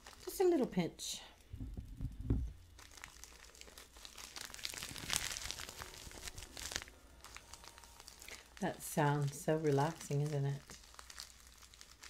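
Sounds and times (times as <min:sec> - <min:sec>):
dry crinkling and crackling: 0:00.0 - 0:12.0.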